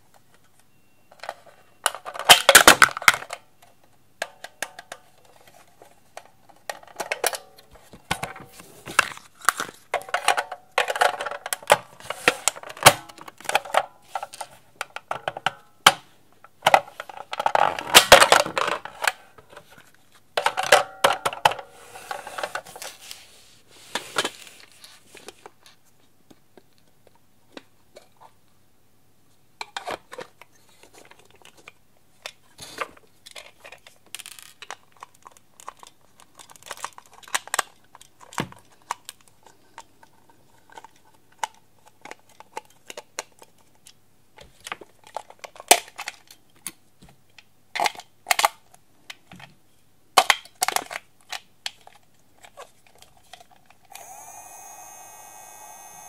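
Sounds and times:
plastic toy parts clicking: 0:33.3 - 0:39.9.

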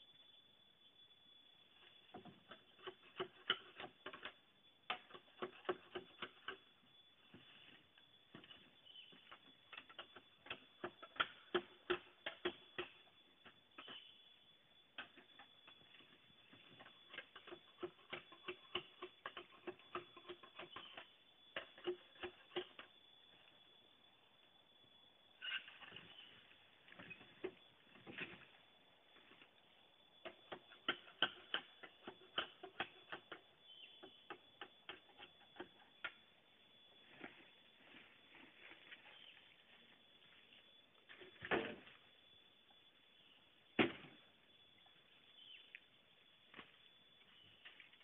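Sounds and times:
clicks and knocks of bamboo poles: 0:01.8 - 0:14.2, 0:14.9 - 0:23.0, 0:25.4 - 0:28.6, 0:30.2 - 0:36.3.

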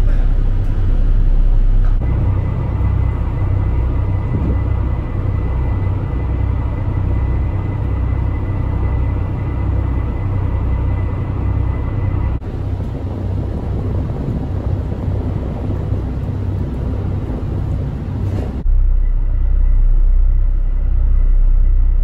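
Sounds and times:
vehicle engine rumble: 0:00.0 - 0:22.0
faint high whine: 0:18.6 - 0:22.0.

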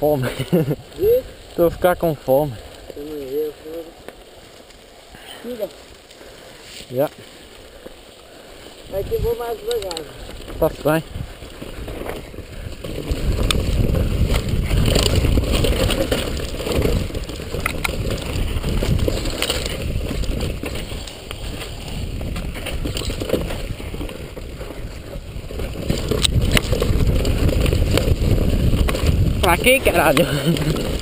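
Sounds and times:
bike rattling over bumps: 0:00.0 - 0:31.0
tyres rushing on loose ground: 0:00.0 - 0:31.0
wind on microphone: 0:08.9 - 0:31.0.

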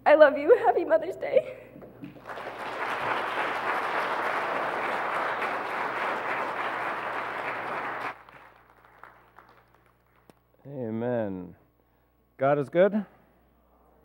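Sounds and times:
congregation applauding: 0:02.0 - 0:10.4.

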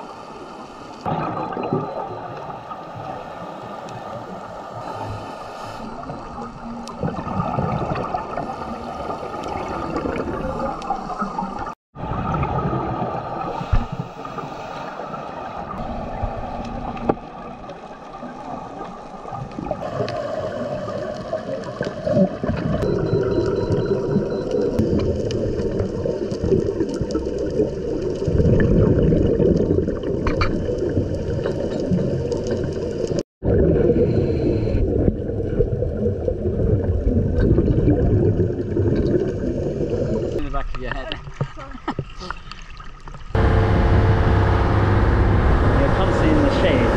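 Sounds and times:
bubbling of exhaled air: 0:02.8 - 0:17.0, 0:19.3 - 0:40.4
low underwater rumble: 0:43.3 - 0:46.9.

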